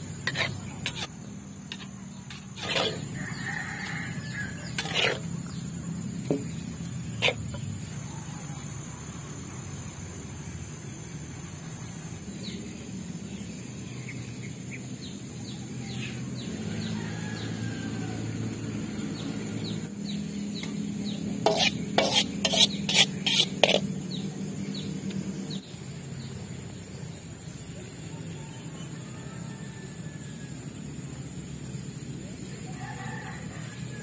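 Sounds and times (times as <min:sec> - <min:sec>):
metal spatula scraping in a wok: 0:00.1 - 0:05.6, 0:06.3 - 0:07.7, 0:21.4 - 0:24.0.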